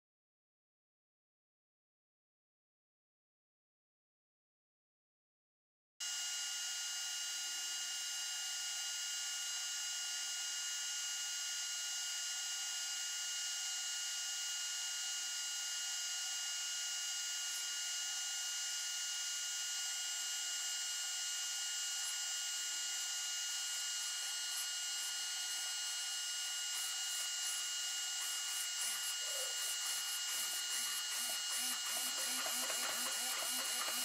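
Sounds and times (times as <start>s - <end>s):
servo motors whining: 22.0s - 34.0s
fast ticking gear chatter: 28.4s - 34.0s.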